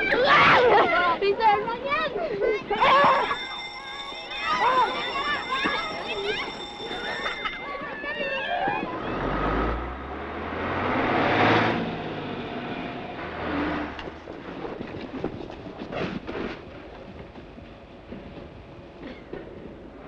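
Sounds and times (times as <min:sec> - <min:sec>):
diesel bus driving by: 0:08.1 - 0:14.8.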